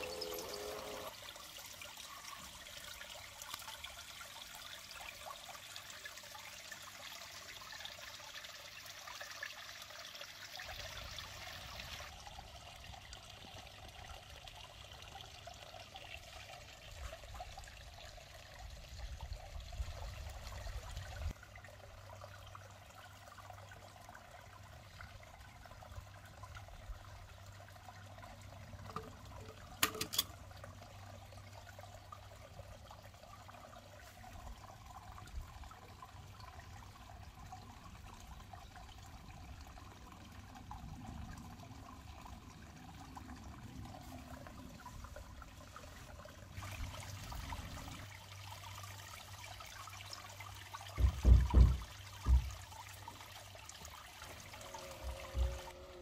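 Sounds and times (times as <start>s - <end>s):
water trickling: 0.0s - 56.0s.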